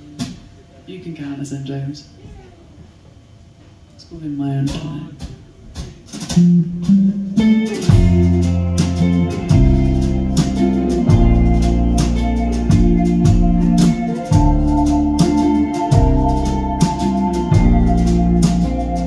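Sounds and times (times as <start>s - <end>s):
drum kit beat: 4.7s - 19.0s
bass guitar: 6.1s - 19.0s
electric guitars: 6.1s - 19.0s
sustained keyboard chords: 6.3s - 19.0s.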